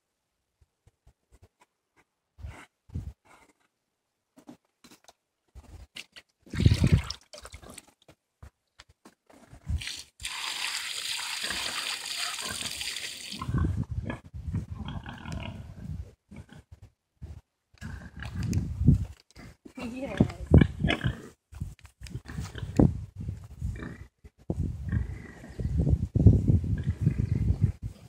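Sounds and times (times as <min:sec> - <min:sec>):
rushing water: 0:09.8 - 0:13.4
pig grunting and snuffling: 0:13.4 - 0:16.8, 0:17.8 - 0:18.4, 0:19.4 - 0:21.4, 0:24.8 - 0:25.7.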